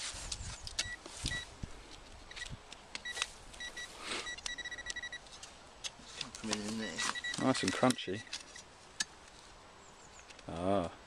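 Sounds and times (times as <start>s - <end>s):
soil crunching and scraping: 0.0s - 2.4s, 5.2s - 9.5s
metal detector beeping: 0.8s - 1.5s, 2.3s - 5.3s, 6.6s - 7.9s.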